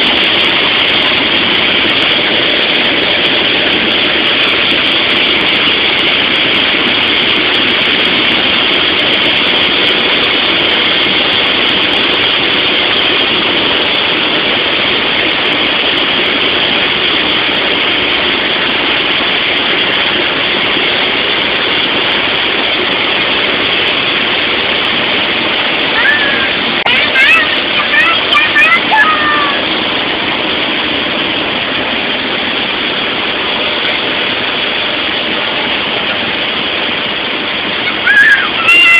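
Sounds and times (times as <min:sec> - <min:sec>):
light aircraft cabin drone: 0:00.0 - 0:38.9.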